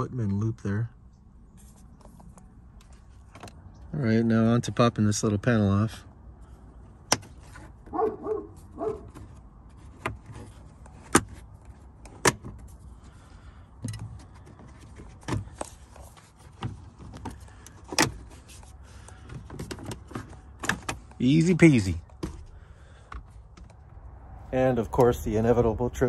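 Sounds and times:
plastic rubbing and rattling: 0:14.0 - 0:21.2.

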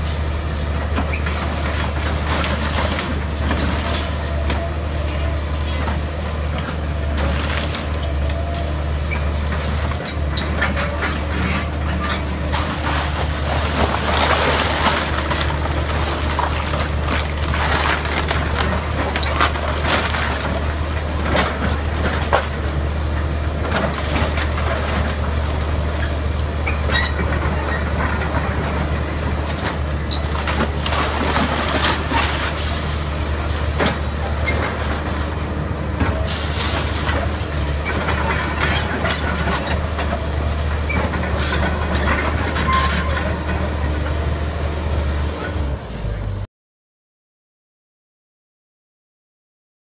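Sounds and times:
excavator diesel engine: 0:00.0 - 0:46.5
timber cracking and crashing: 0:12.7 - 0:21.6, 0:29.6 - 0:35.4.

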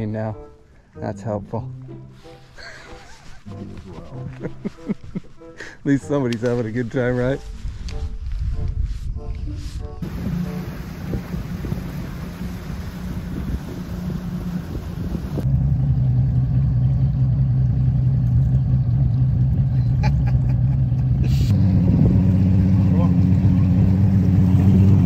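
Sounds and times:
water and wind noise: 0:07.5 - 0:15.5
outboard motor humming: 0:10.0 - 0:15.4.

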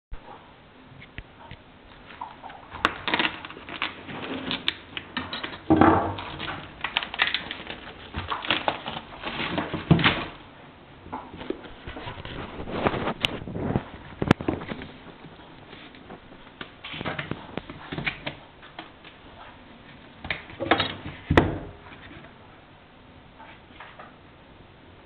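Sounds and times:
plastic packaging crinkling: 0:01.9 - 0:10.5, 0:11.3 - 0:21.3.

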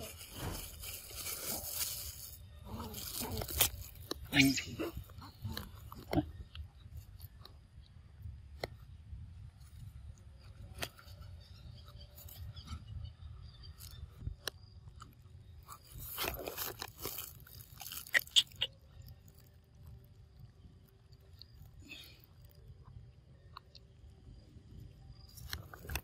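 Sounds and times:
monkey biting and chewing fruit: 0:00.0 - 0:07.2, 0:15.7 - 0:18.7.

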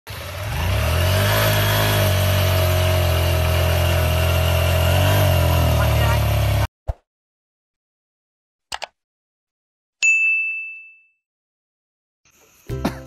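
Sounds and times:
small motorcycle engine running: 0:00.0 - 0:06.7.

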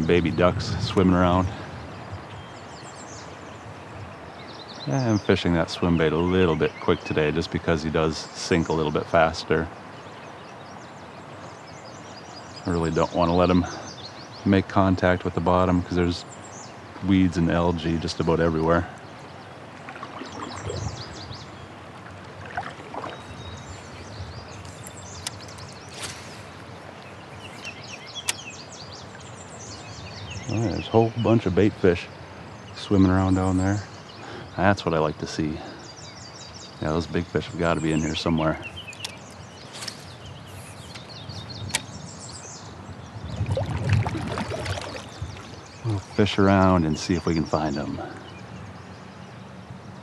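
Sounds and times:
low background hiss: 0:00.0 - 0:43.2, 0:43.8 - 0:50.0
birds chirping: 0:00.0 - 0:50.0
breeze: 0:00.0 - 0:50.0
water washing: 0:19.7 - 0:23.8, 0:43.3 - 0:46.8
sharp click: 0:28.2 - 0:28.4, 0:38.8 - 0:41.1.

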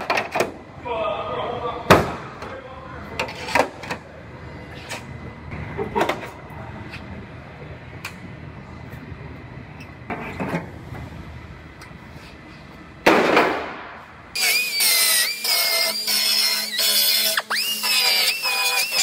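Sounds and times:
steady low hum: 0:00.0 - 0:14.4.

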